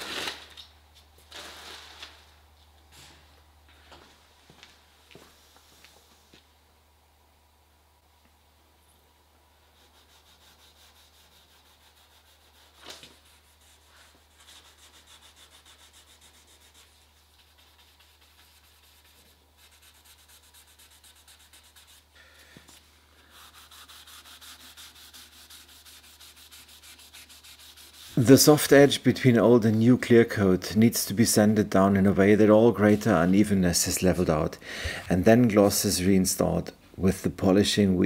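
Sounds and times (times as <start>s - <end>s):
sandpaper rubbing on car paint: 9.6s - 22.2s, 23.2s - 28.6s.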